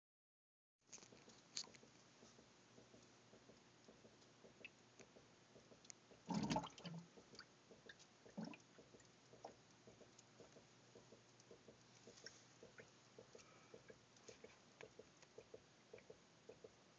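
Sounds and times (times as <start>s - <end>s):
liquid bubbling and gurgling: 6.2s - 9.6s.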